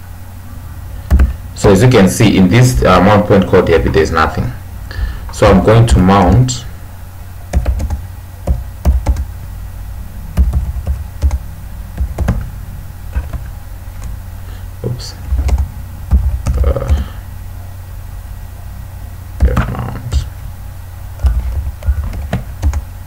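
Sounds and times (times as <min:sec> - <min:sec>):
low hum: 0:00.0 - 0:23.0
keyboard typing: 0:07.5 - 0:09.3, 0:10.3 - 0:12.5, 0:13.1 - 0:14.2, 0:15.2 - 0:17.2, 0:19.4 - 0:20.5, 0:21.2 - 0:22.9.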